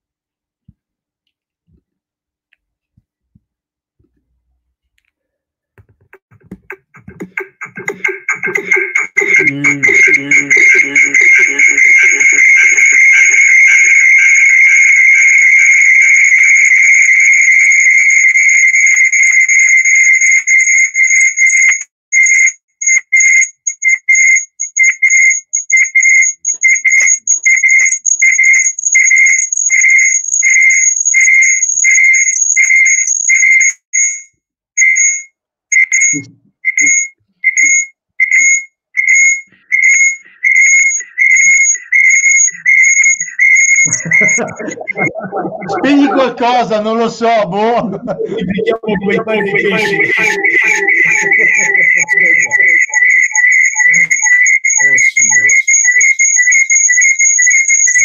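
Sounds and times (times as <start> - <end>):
high-pitched electronic tone beeping: 6.5 - 19.4, 38.4 - 46.4, 47.8 - 58.0.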